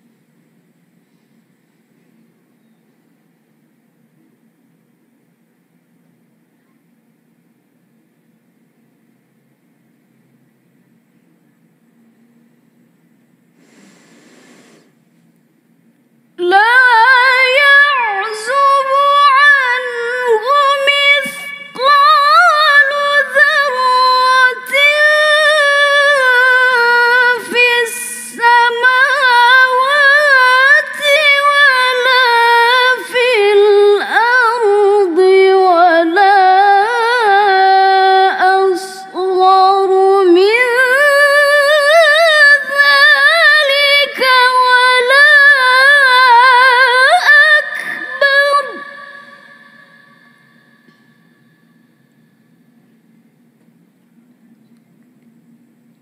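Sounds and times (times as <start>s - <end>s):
woman reciting melodically: 16.4s - 51.4s.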